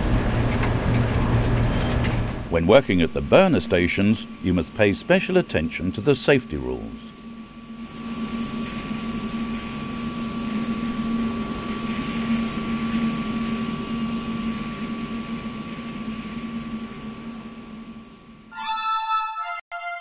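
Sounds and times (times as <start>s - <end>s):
industrial machinery hum: 0.0s - 18.6s
high whine: 0.0s - 20.0s
hiss: 2.3s - 18.6s
synthesizer music: 2.5s - 7.1s.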